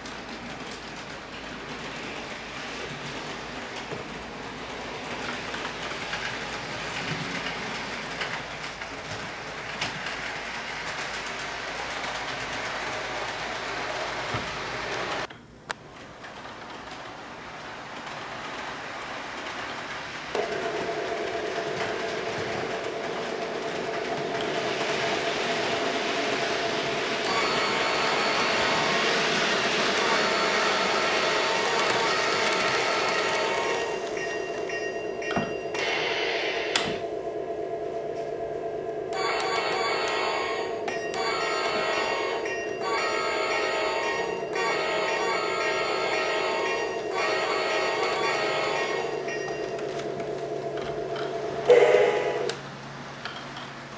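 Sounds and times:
model train running on track: 0.0 - 15.3, 16.0 - 53.9
wheels clicking over rail joints: 0.0 - 27.4
electronic locomotive sound: 18.0 - 53.4.

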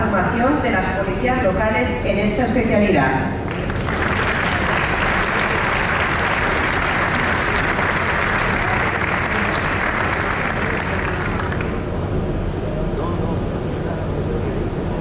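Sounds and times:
audience applauding: 3.5 - 11.8.

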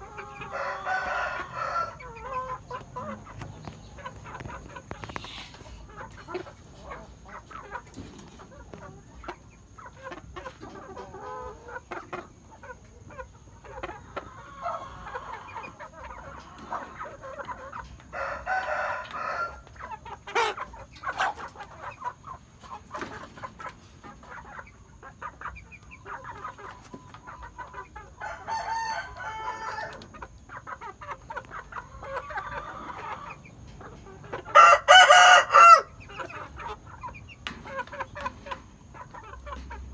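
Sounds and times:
chickens clucking: 0.0 - 39.9
rooster crowing: 0.4 - 2.1, 18.1 - 19.6, 28.2 - 30.0, 34.5 - 36.0.

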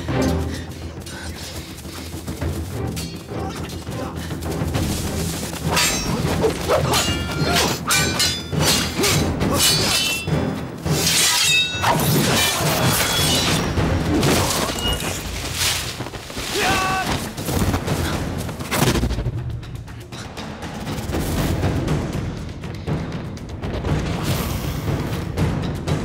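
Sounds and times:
dramatic music: 0.0 - 26.0
swords clashing: 5.6 - 15.2.

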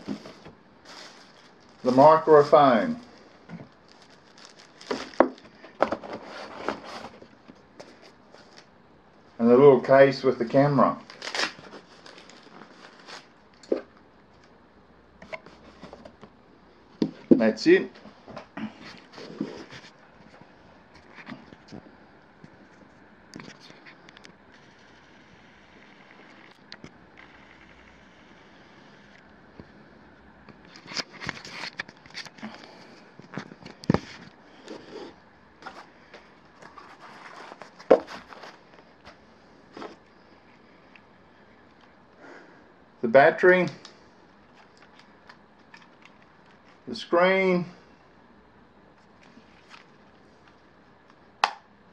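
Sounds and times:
hands handling plastic camcorder: 30.6 - 34.8, 44.5 - 46.8.

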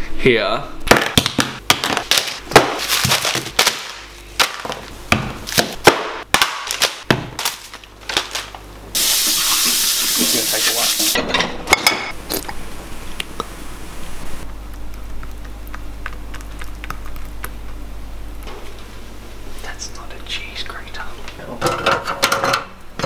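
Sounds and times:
loud steady hiss: 8.9 - 11.2.

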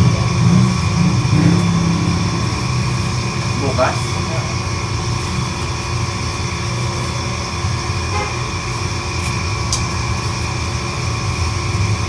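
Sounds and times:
kitchen equipment humming: 0.0 - 12.0.

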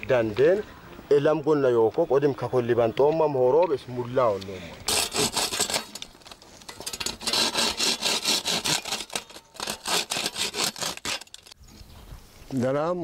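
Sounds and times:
hand saw cutting bamboo: 4.9 - 6.0, 6.8 - 11.6.

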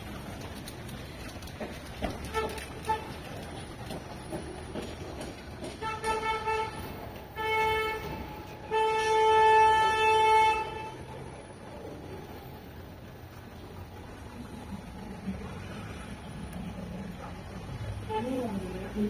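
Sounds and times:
street traffic: 0.0 - 19.0
vehicle horn honking: 5.8 - 6.8, 7.4 - 11.1.

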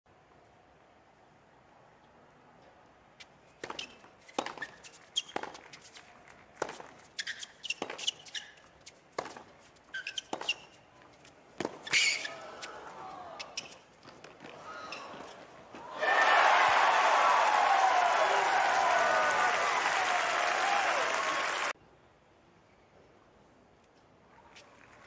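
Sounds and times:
racket striking tennis ball: 3.6 - 6.0, 6.6 - 10.8, 11.6 - 12.3
tennis ball bouncing: 3.6 - 6.0, 6.6 - 10.8, 11.6 - 12.1
sneaker squeaks: 3.6 - 12.8, 13.4 - 15.6.

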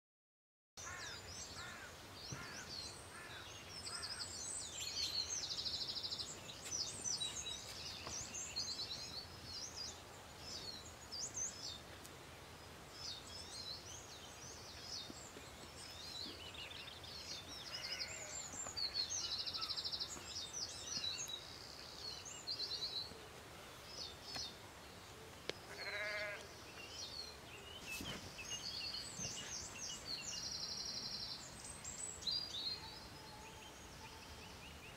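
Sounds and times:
birds chirping and trilling: 0.8 - 34.9
sheep bleating: 17.7 - 18.4, 25.7 - 26.5.

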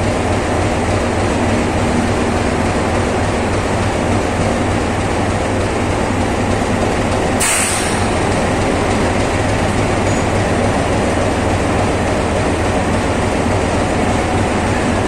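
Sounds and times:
train wheels rumbling on rails: 0.0 - 15.0
short hiss: 7.4 - 8.1.

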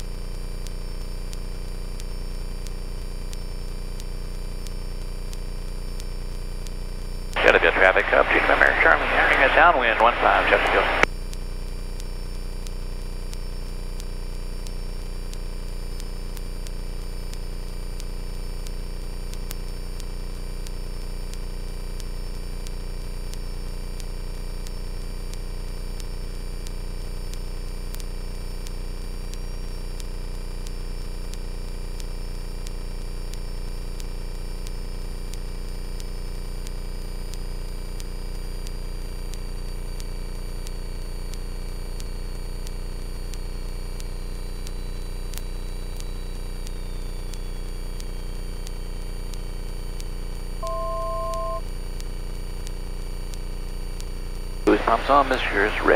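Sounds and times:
faint high whine: 7.3 - 11.1, 50.6 - 51.7, 54.7 - 55.9
light aircraft engine drone: 7.4 - 11.0.

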